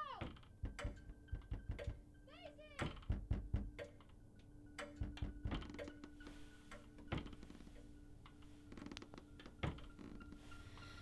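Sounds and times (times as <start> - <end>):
faint knocks and thuds: 0.1 - 2.1, 2.8 - 4.0, 4.9 - 6.1, 7.0 - 7.5.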